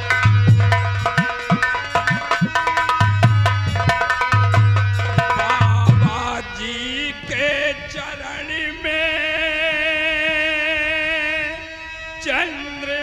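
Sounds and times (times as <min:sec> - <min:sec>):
heavy drum strokes: 0:00.0 - 0:06.4
man singing with vibrato: 0:05.0 - 0:13.0.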